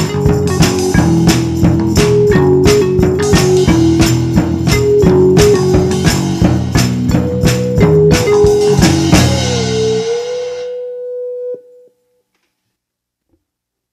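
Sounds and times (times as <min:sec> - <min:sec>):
theme music with drum beat: 0:00.0 - 0:10.8
held musical note: 0:00.0 - 0:11.8.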